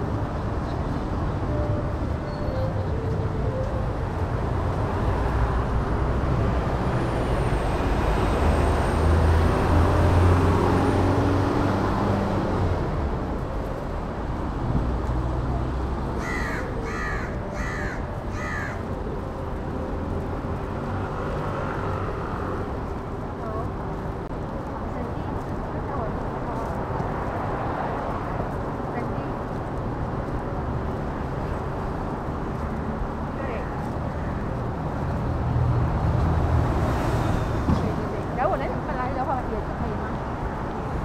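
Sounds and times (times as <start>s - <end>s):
city street traffic: 0.0s - 41.0s
heavy vehicle rumble: 0.0s - 41.0s.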